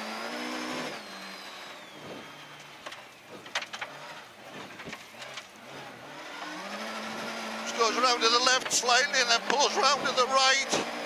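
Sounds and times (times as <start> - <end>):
rally car engine revving: 0.0 - 11.0
sharp clicks and knocks: 2.6 - 5.6.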